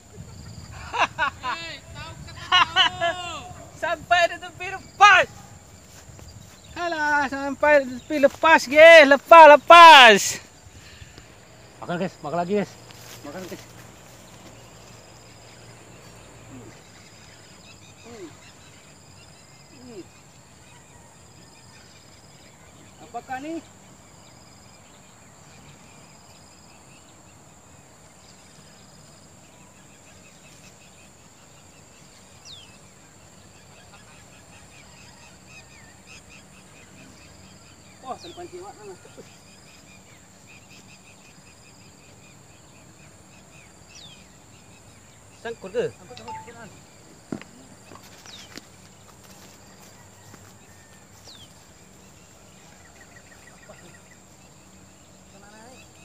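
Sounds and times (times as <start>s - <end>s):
high insect drone: 0.0s - 56.0s
faint chirps: 10.4s - 27.2s, 28.1s - 48.6s.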